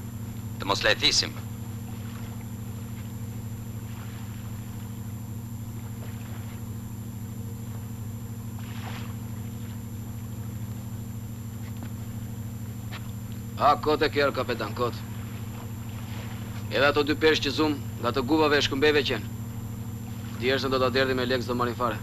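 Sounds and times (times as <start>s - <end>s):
boat engine droning: 0.0s - 22.0s.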